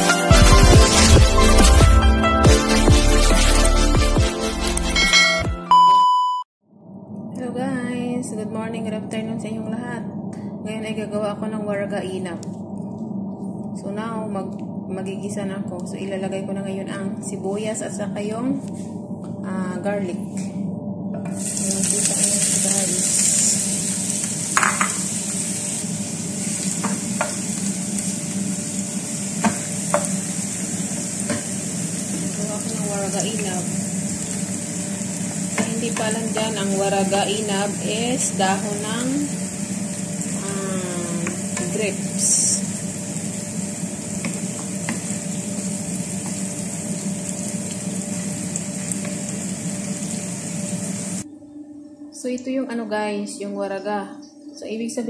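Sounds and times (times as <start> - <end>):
onion sizzling in oil: 0.4 - 2.1, 21.4 - 51.2.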